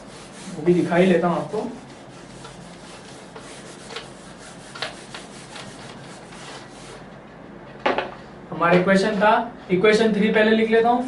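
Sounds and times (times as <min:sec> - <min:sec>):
duster rubbing on whiteboard: 0:00.0 - 0:07.1.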